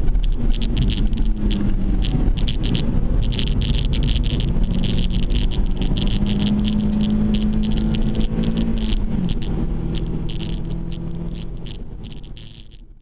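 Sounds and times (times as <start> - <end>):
car engine revving: 0.0 - 13.0
high-pitched rattle: 0.0 - 13.0.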